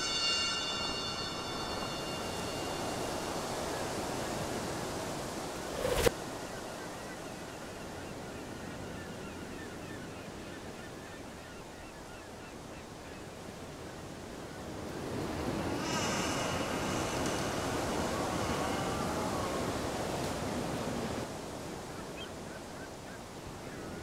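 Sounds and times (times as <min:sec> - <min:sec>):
steady rushing noise: 0:00.0 - 0:06.9, 0:14.9 - 0:21.5.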